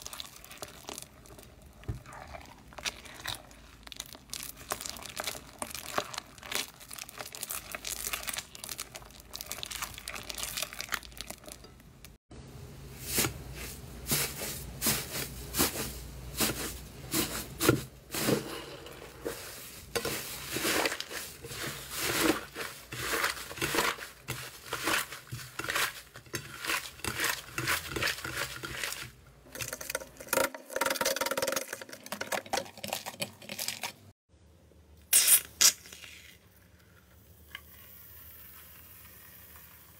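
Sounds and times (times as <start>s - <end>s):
slime stirred with spatula: 0.0s - 12.0s, 13.0s - 34.1s
slime crinkling and tearing: 2.8s - 11.6s.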